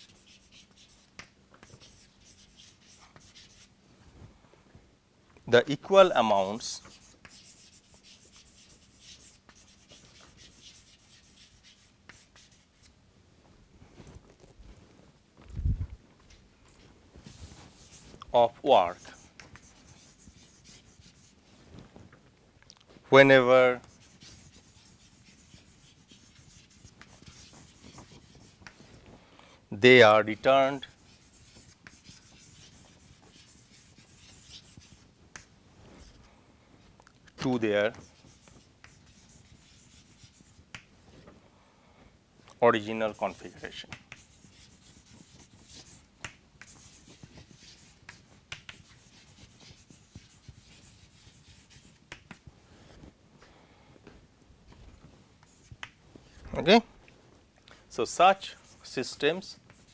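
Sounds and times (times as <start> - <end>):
chalk scratching on blackboard: 0.0 - 3.7, 6.4 - 13.0, 17.2 - 21.5, 23.4 - 28.8, 30.4 - 36.2, 37.4 - 40.9, 42.8 - 52.5, 55.4 - 56.0, 58.4 - 59.9.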